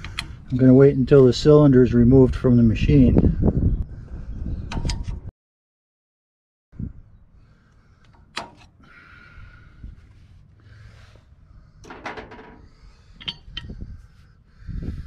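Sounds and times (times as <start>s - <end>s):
metallic clinks of hand tools: 13.2s - 13.7s.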